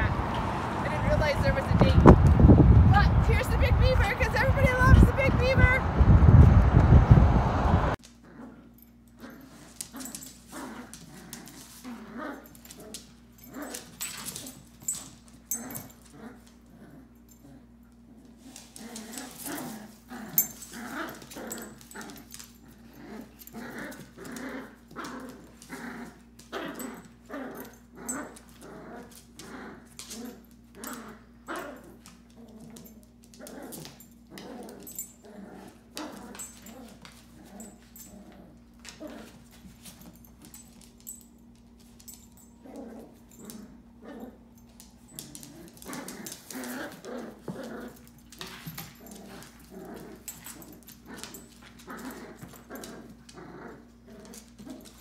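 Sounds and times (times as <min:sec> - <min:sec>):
small dogs growling: 0:08.1 - 0:41.2, 0:42.1 - 0:55.0.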